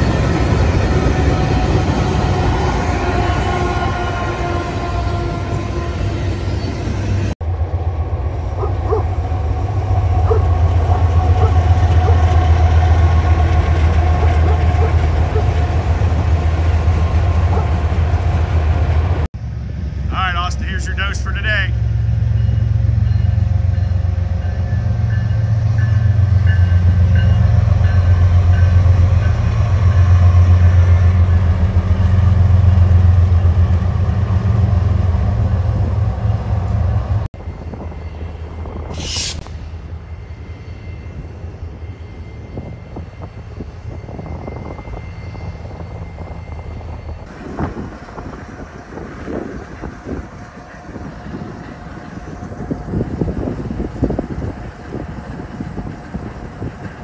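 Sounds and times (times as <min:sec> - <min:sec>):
wind buffeting microphone: 0:00.0 - 0:07.3, 0:41.1 - 0:57.0
diesel locomotive engines rumbling: 0:00.0 - 0:57.0.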